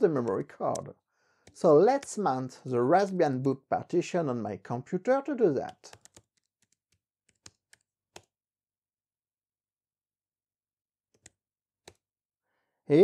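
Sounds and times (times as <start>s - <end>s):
laptop keyboard keystrokes: 5.6s - 8.4s, 11.1s - 12.1s.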